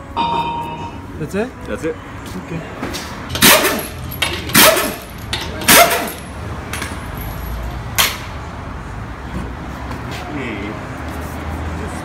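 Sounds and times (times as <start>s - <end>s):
pneumatic tool bursts: 3.4s - 6.2s.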